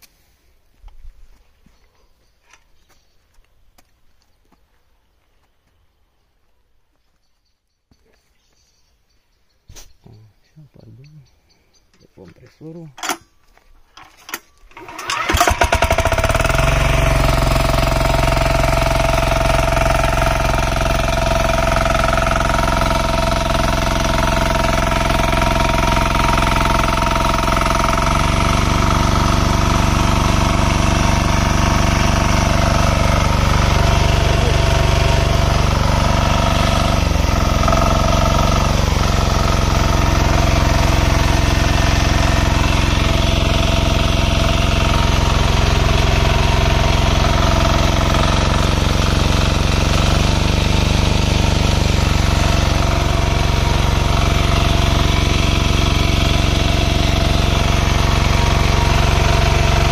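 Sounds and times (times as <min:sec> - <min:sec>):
diesel generator running: 0:12.6 - 0:59.9.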